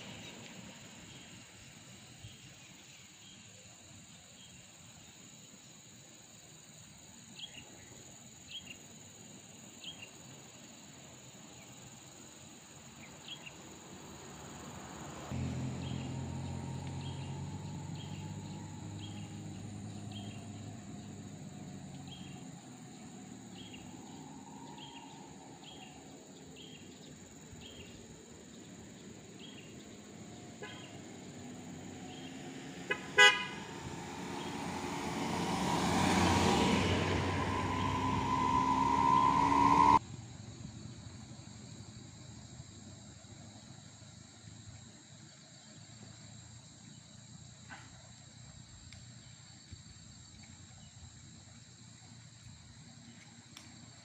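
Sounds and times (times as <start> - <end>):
insects chirping: 0.0 - 54.0
vehicle engine hum: 13.7 - 41.9
car passing close: 14.3 - 27.8, 29.0 - 40.0
car horn toot: 32.8 - 34.0.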